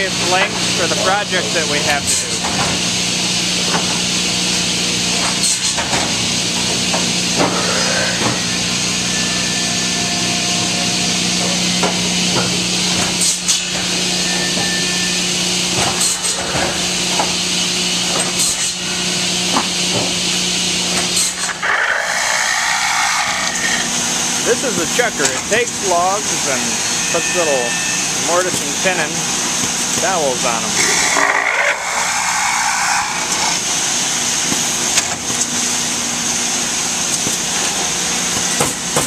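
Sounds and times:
shop machinery hum and hiss: 0.0s - 39.0s
cutoff saw cutting logs: 20.9s - 35.2s.

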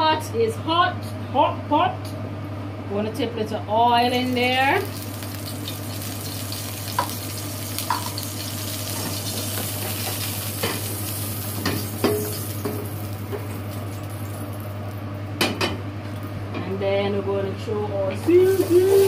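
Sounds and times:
oil sizzling in a frying pan: 4.2s - 15.0s, 18.3s - 19.0s.

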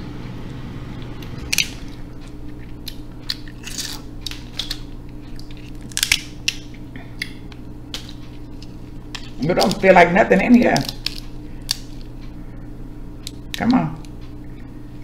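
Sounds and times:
crab shells cracking: 1.5s - 9.9s, 10.6s - 12.2s.

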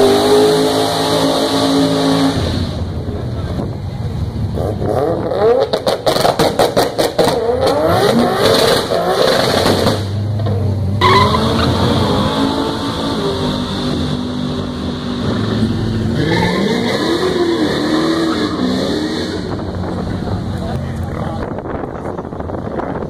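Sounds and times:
engine revving: 0.0s - 2.8s, 4.6s - 21.4s
car engines running under load: 0.0s - 23.0s
tyre squeal: 11.0s - 13.4s.

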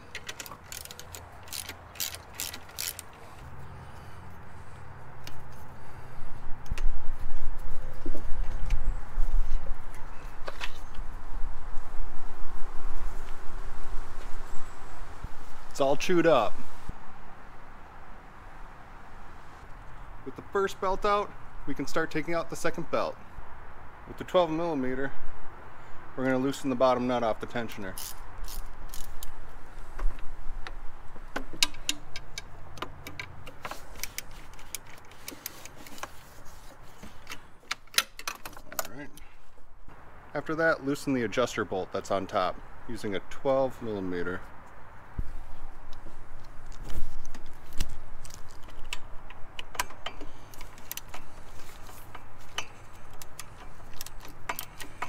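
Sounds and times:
ratchet wrench clicking: 0.0s - 3.2s, 28.0s - 29.4s, 48.2s - 55.0s
metal tool clinking on bolt: 52.0s - 55.0s.

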